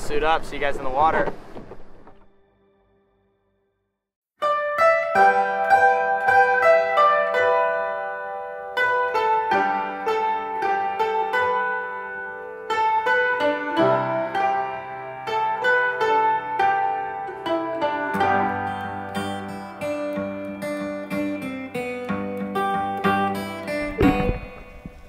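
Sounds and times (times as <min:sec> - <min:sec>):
low bass line: 0:23.7 - 0:25.0.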